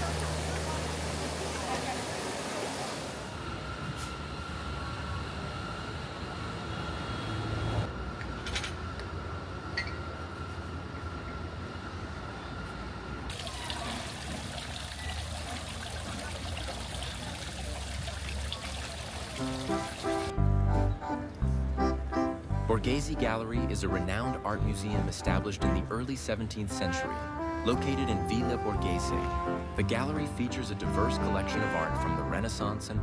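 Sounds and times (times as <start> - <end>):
running water rushing: 0.0 - 3.3, 13.3 - 20.3.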